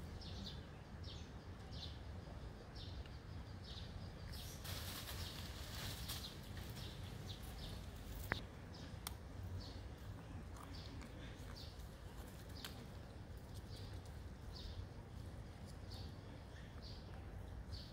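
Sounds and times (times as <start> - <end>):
hissing rustle: 4.4 - 8.4.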